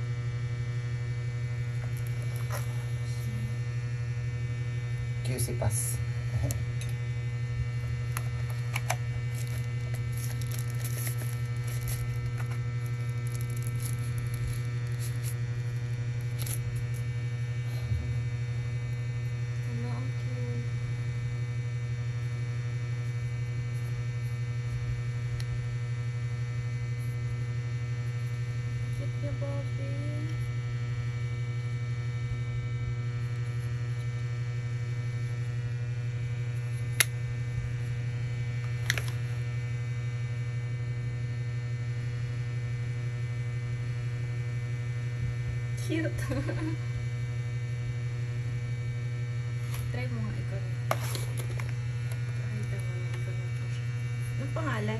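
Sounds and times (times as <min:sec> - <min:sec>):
electrical hum: 0:00.0 - 0:54.9
faint crackles and clicks: 0:08.1 - 0:17.1, 0:38.6 - 0:39.3.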